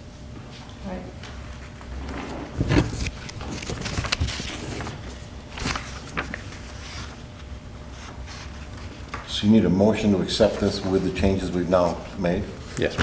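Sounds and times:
papers shuffling: 2.0s - 9.3s.

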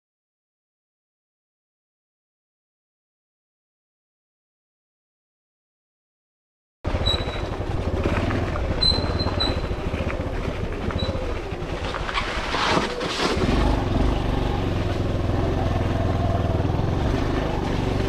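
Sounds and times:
motorcycle engine at low speed: 6.9s - 18.0s.

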